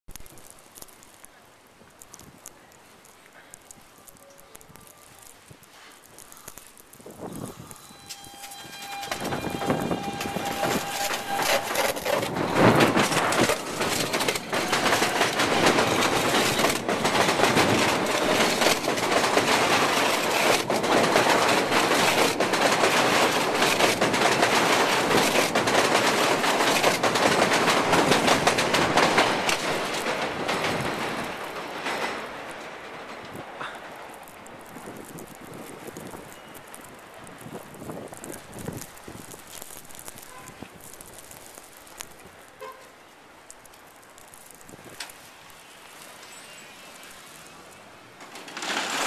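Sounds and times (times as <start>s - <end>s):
electric arcing crackling and popping: 0.0s - 31.8s, 33.2s - 46.2s
thin steady whine: 2.5s - 14.5s.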